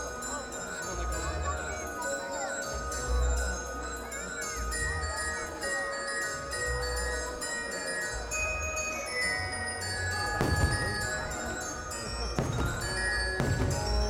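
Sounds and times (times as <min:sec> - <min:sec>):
glockenspiel and bells music: 0:00.0 - 0:14.0
firework boom: 0:10.4 - 0:14.0.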